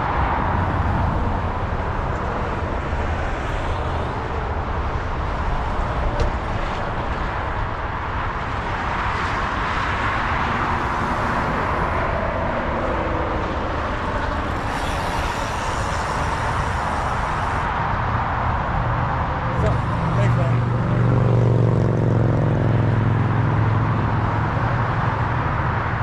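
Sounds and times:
freeway traffic roar: 0.0s - 26.0s
high hiss: 14.6s - 17.7s.

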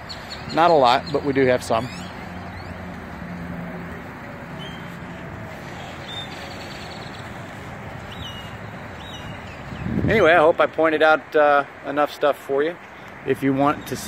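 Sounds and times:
outdoor background noise: 0.0s - 14.0s
high bird chirps: 8.0s - 9.9s.

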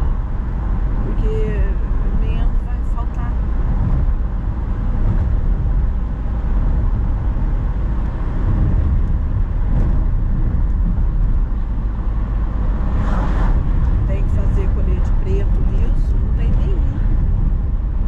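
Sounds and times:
car road and engine noise: 0.0s - 18.0s.

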